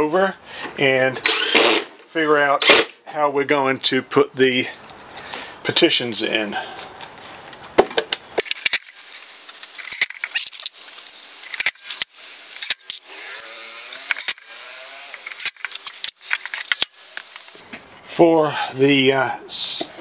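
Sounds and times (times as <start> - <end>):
cordless drill driving screws: 1.2 - 2.0, 11.5 - 17.6
screws rattling in plastic box: 8.4 - 13.0, 14.0 - 17.4.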